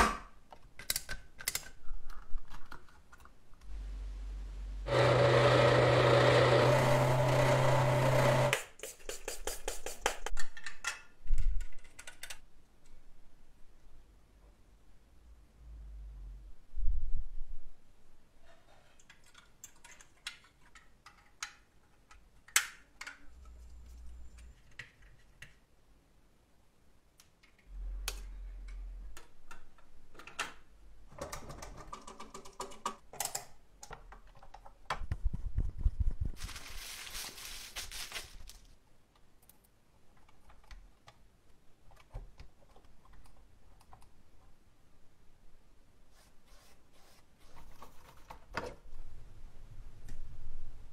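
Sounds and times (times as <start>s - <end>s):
plastic toy parts clicking: 0.5s - 3.3s.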